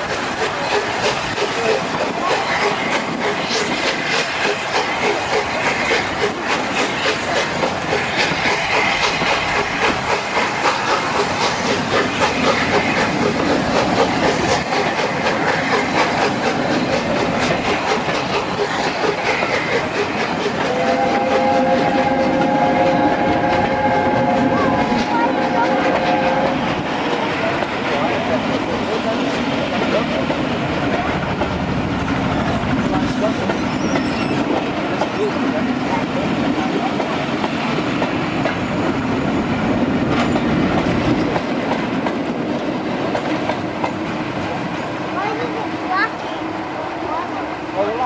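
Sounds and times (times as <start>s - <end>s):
steam hissing: 0.0s - 48.0s
train wheels clattering over rails: 0.0s - 48.0s
steam locomotive chime whistle: 20.6s - 26.6s.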